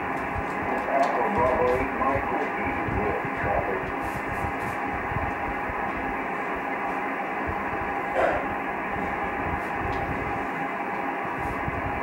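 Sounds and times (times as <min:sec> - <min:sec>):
radio static and hiss: 0:00.3 - 0:05.8, 0:08.1 - 0:09.7
faint garbled voices: 0:00.6 - 0:04.2.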